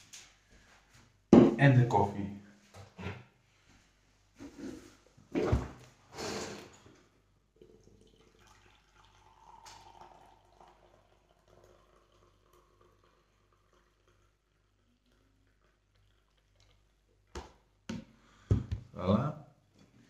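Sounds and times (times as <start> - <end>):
liquid pouring: 6.6 - 17.3.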